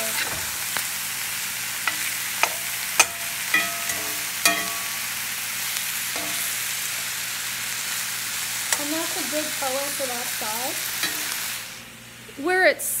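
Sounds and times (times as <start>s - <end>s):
meat sizzling in a skillet: 0.0s - 12.7s
metal spatula clinking on pan: 1.9s - 5.0s, 6.2s - 6.6s, 11.0s - 11.4s.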